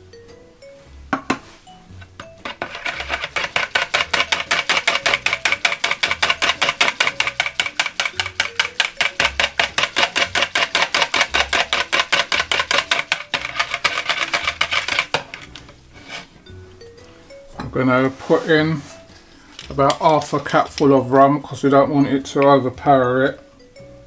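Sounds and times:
whisk clattering in plastic jug: 2.4s - 15.6s.

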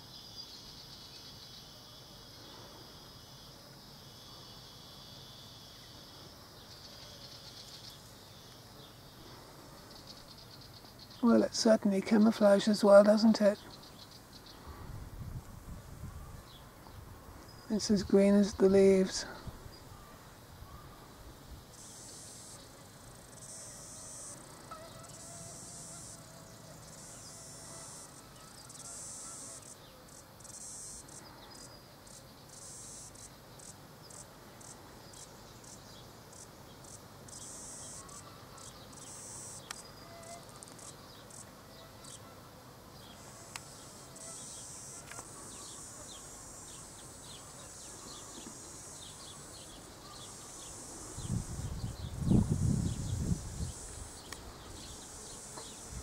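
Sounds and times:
cicadas calling: 0.0s - 56.0s.

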